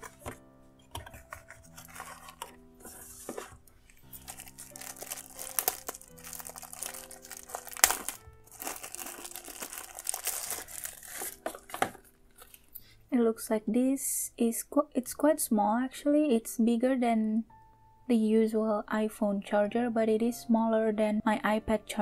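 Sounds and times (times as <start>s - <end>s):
wrapping crinkling and rustling: 0.0s - 12.8s
soft background music: 0.0s - 22.0s
sharp crackle of wrapping: 1.2s - 12.8s.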